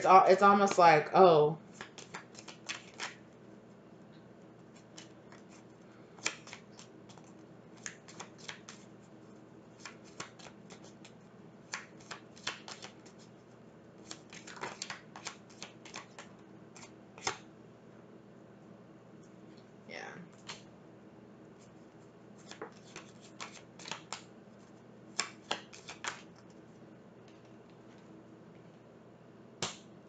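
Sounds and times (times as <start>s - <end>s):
faint steady hum: 0.0s - 30.0s
cards being shuffled: 1.7s - 3.4s, 4.7s - 8.9s, 9.8s - 13.3s, 14.0s - 17.5s, 22.4s - 26.6s.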